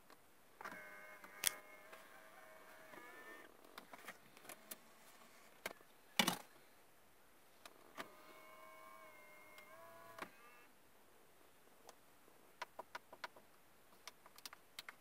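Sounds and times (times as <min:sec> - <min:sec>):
small electric motor whining: 0:00.6 - 0:03.5, 0:08.0 - 0:10.7.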